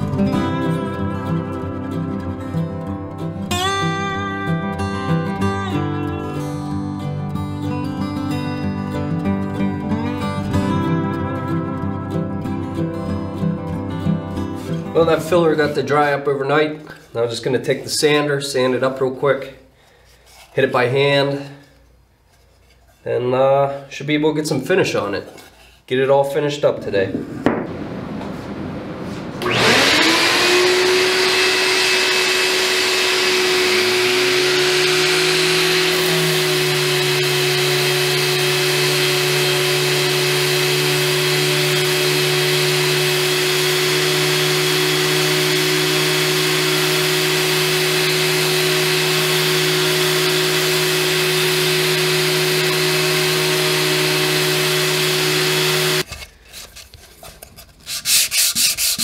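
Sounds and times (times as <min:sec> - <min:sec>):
deeper motor hum: 0:27.0 - 0:56.0
orbital sander running: 0:27.4 - 0:56.1
sandpaper rubbing by hand: 0:56.1 - 0:59.0.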